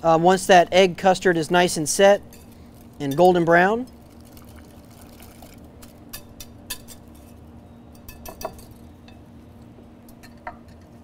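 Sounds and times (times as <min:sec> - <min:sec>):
whisk sloshing egg mixture: 0:03.9 - 0:06.0.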